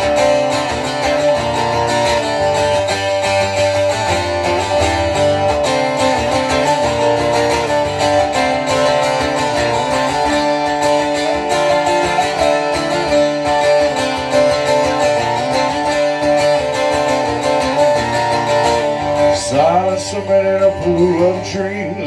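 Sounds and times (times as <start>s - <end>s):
acoustic guitar strumming: 0.0s - 22.0s
man singing: 19.1s - 22.0s.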